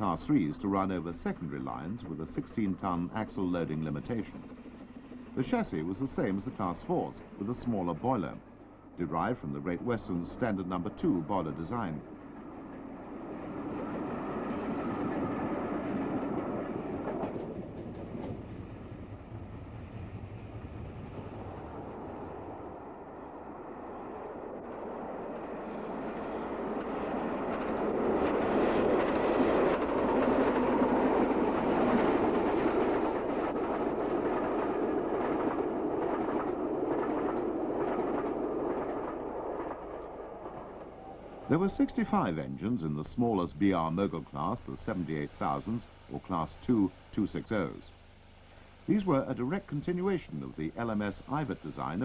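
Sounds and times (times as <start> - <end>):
train wheels clattering over rails: 13.4 - 22.6, 25.2 - 41.1.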